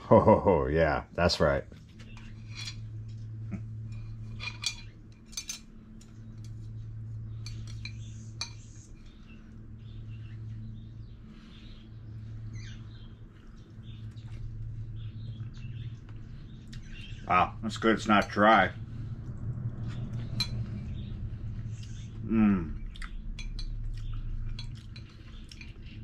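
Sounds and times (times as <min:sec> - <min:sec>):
steady low hum: 0:00.0 - 0:26.0
chopsticks clinking on ceramic bowl: 0:19.8 - 0:20.8, 0:23.3 - 0:26.0.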